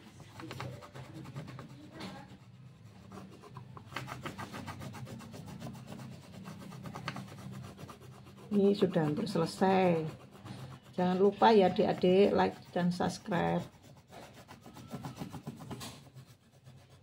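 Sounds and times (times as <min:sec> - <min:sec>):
colored pencil shading on paper: 0:00.0 - 0:17.0.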